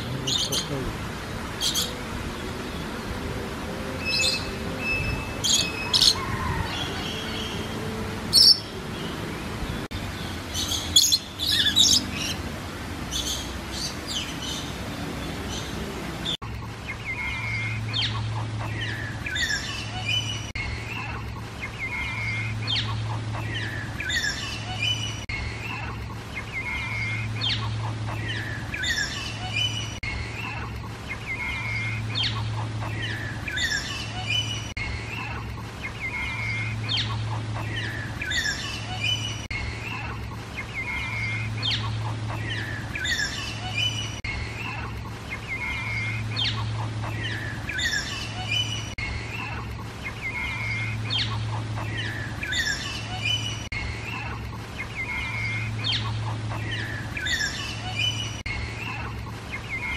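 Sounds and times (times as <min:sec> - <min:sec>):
birds chirping and calling: 0:00.0 - 0:59.9
low steady hum: 0:00.0 - 0:59.9.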